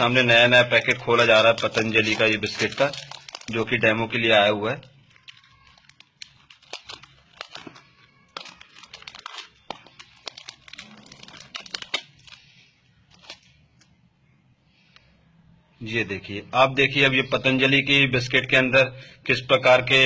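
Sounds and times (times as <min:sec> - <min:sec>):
plastic wrapper crinkling: 0:00.0 - 0:14.0.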